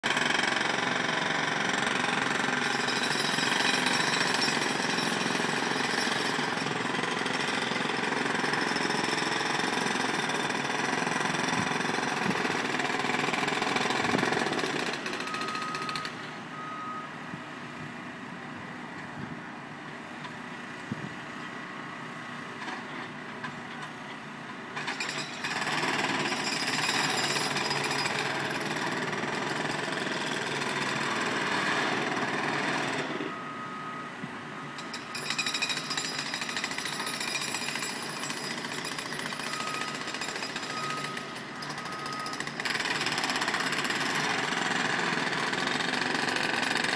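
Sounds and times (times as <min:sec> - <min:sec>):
reversing alarm beeps: 0:13.6 - 0:17.2, 0:29.4 - 0:43.8
distant jackhammer hammering: 0:24.8 - 0:33.3, 0:34.8 - 0:46.9.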